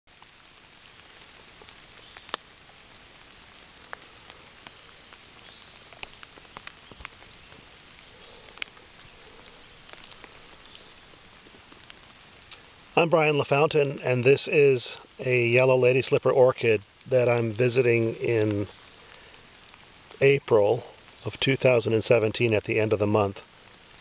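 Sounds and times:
light rain on leaves: 0.1 - 24.0
sharp raindrops striking: 0.1 - 24.0.

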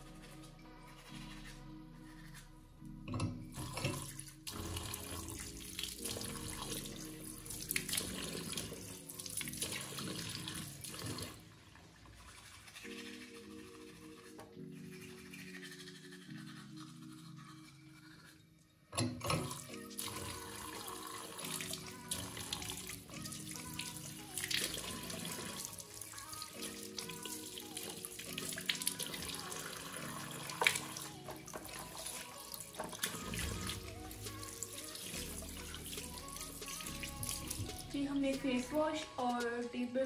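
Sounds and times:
tap water running into basin: 3.1 - 13.0, 19.0 - 39.6
water splashing from rinsing: 3.6 - 13.3, 19.2 - 39.8.

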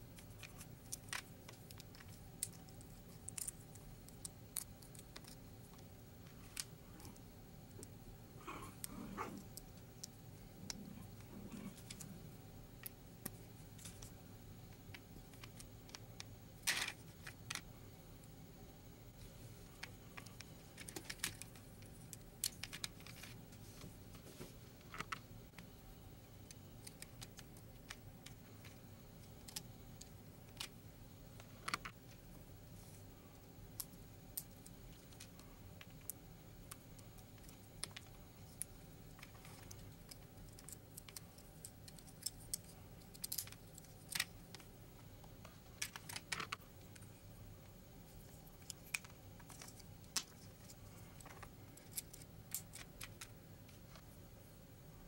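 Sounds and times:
plastic pieces clicking together: 37.4 - 44.7, 51.2 - 53.3.

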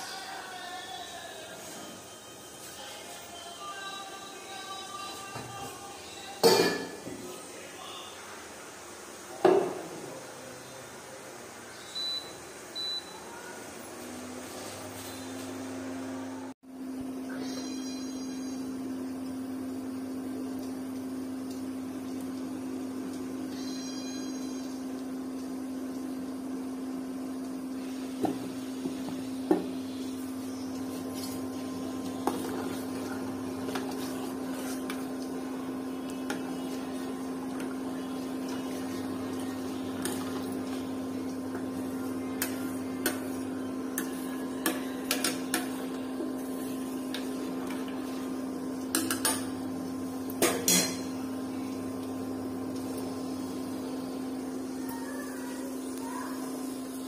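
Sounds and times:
low electrical hum: 14.8 - 57.0.

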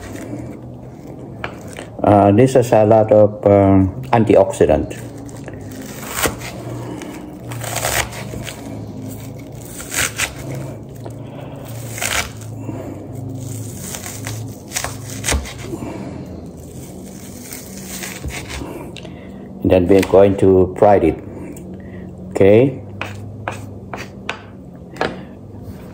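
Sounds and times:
knife chopping onion on board: 14.7 - 15.7, 22.9 - 25.2.

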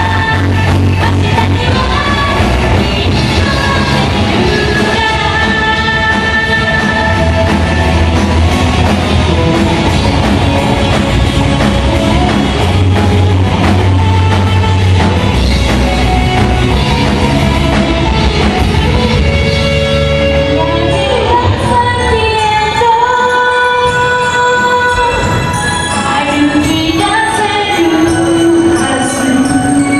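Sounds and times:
woman singing: 0.0 - 7.6, 20.6 - 29.9
live rock band playing: 0.0 - 22.6.

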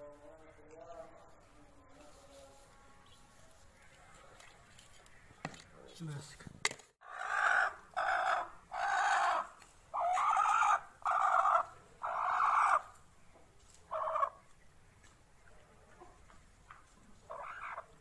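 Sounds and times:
hen calling: 7.0 - 13.0, 17.3 - 18.0.

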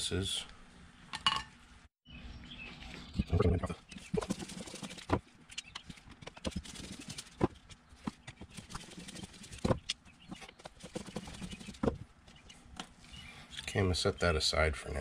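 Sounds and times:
tools set down on table: 1.1 - 1.5.

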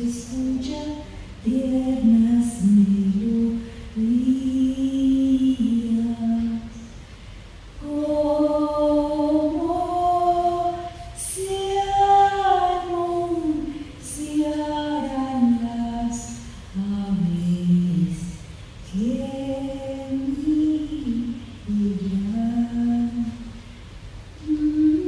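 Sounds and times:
person singing slowly: 7.8 - 23.6, 24.4 - 25.0.

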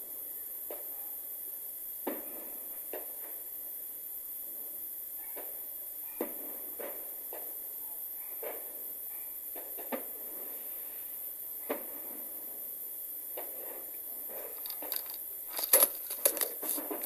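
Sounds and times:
steady hiss: 0.0 - 17.0
distant fireworks pops: 2.0 - 3.4, 6.2 - 7.6, 9.5 - 10.5
sharp clicks: 14.6 - 17.0.

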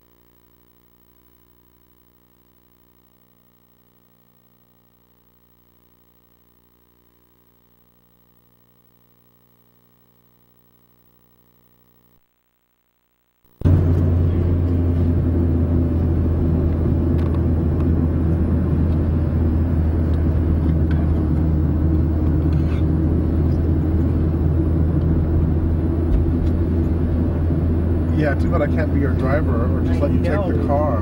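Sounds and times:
car engine and tyres rumbling: 13.6 - 31.0.

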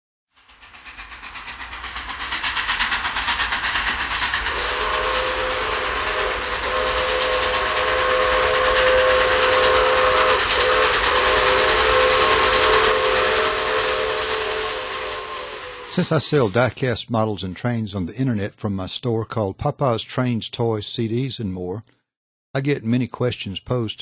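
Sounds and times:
steam locomotive chuffing: 0.3 - 21.4, 22.6 - 24.0
steam whistle blast: 4.4 - 16.5.

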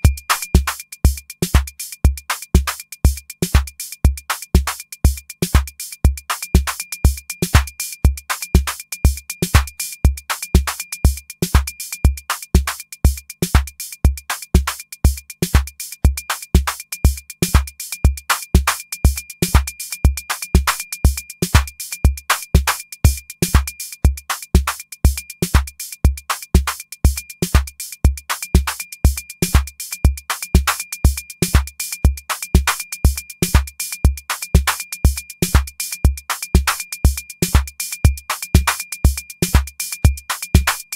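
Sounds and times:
drum machine kick drum: 0.0 - 40.9
hi-hat clicks: 0.0 - 40.9.

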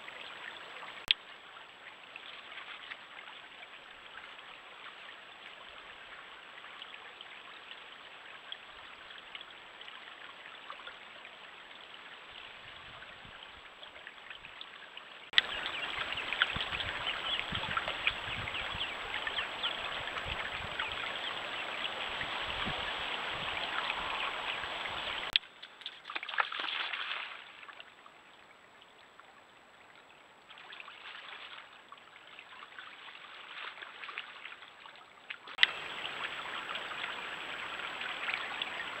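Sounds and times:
stream trickling over stones: 0.0 - 39.0.

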